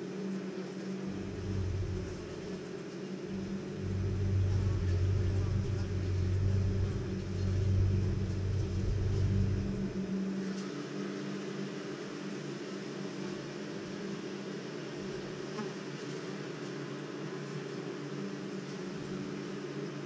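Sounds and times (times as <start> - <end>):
honeybees buzzing: 0.0 - 20.0
deep low rumble: 1.0 - 2.6, 3.2 - 10.5.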